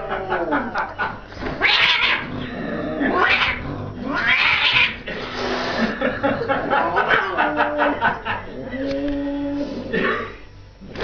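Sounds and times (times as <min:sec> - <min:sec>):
cat yowling: 0:01.6 - 0:02.3, 0:03.1 - 0:05.1.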